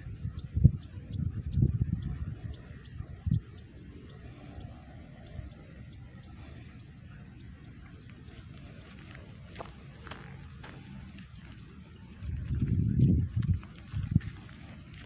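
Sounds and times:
low rumble on microphone: 0.0 - 15.0.

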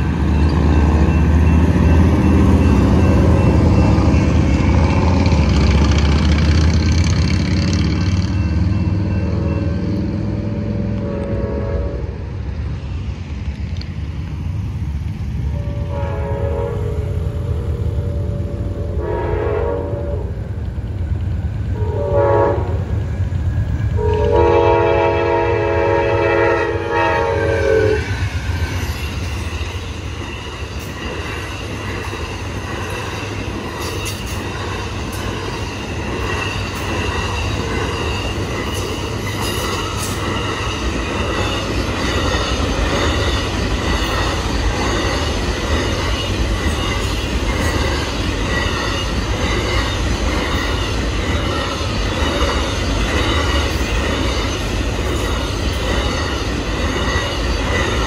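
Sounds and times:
crossing bells ringing: 0.0 - 10.8, 27.8 - 58.0
train cars rumbling on rails: 0.0 - 58.0
train horn blasts: 9.2 - 12.3, 15.5 - 20.4, 21.8 - 22.9, 24.0 - 28.2.

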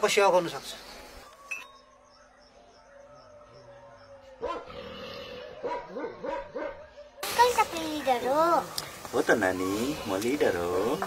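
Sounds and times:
dog yipping: 4.4 - 4.7, 5.4 - 7.2.

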